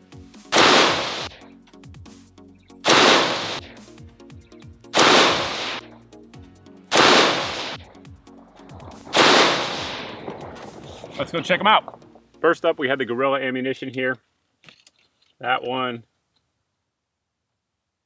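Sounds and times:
background music: 0.0s - 14.1s
rifle shots: 0.5s - 1.4s, 2.8s - 3.8s, 5.0s - 5.8s, 6.9s - 8.0s, 8.9s - 11.1s.

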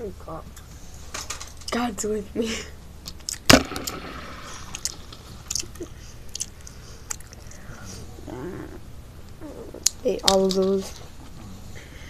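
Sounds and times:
person chewing: 4.7s - 8.1s
small mouth clicks: 4.8s - 7.7s.

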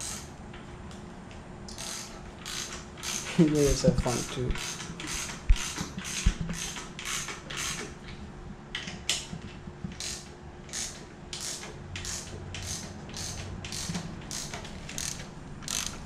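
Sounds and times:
ratchet wrench clicking: 0.0s - 0.3s, 1.7s - 7.9s, 10.0s - 16.0s.

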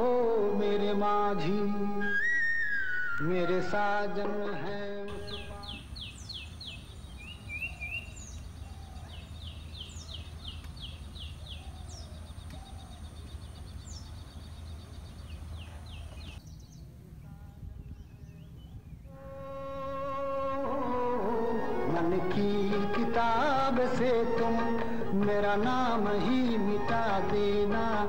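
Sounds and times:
bird calling high sliding notes: 1.9s - 4.0s
steady low hum: 5.1s - 21.7s.

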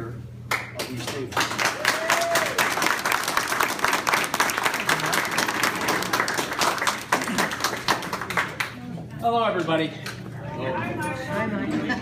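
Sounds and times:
audience applauding: 0.5s - 8.8s.

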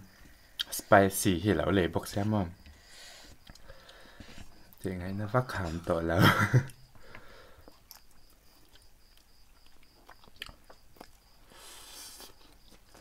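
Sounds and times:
people chewing and slurping noodles: 2.1s - 4.9s, 6.7s - 13.0s.

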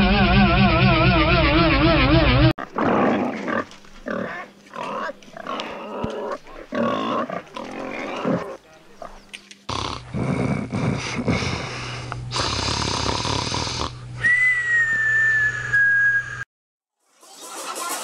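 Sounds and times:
music: 0.0s - 2.5s, 17.0s - 18.0s
rasping snores: 9.7s - 14.0s.

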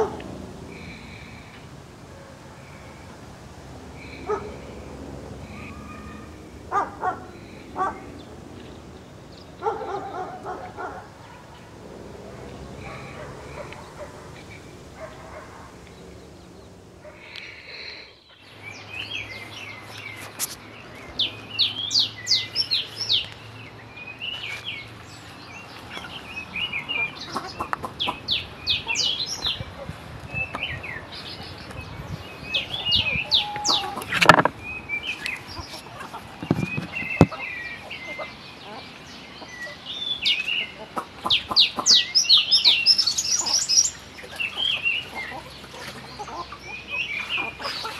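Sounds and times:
chicks cheeping and clucking: 25.7s - 47.9s.

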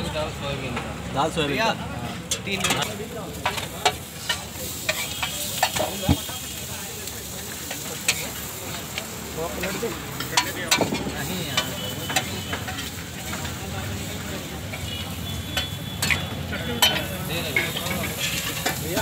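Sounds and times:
patties sizzling on griddle: 1.1s - 19.0s
spatula scraping metal griddle: 16.8s - 19.0s.

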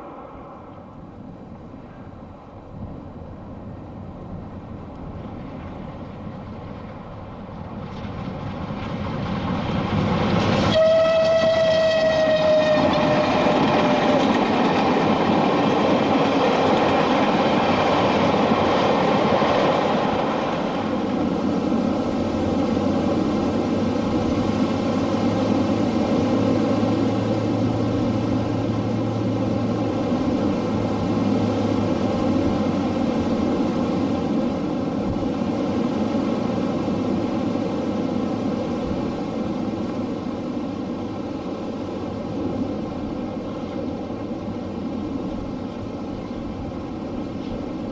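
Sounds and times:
train running noise: 0.0s - 47.9s
steam locomotive whistle: 10.6s - 14.3s.

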